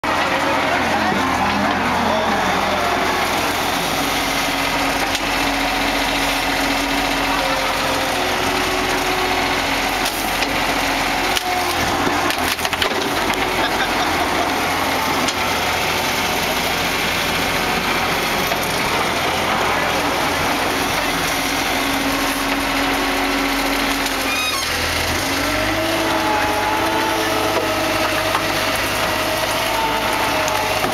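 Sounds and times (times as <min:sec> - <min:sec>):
loader engine running: 0:00.0 - 0:30.9
branches cracking and snapping: 0:11.3 - 0:13.5.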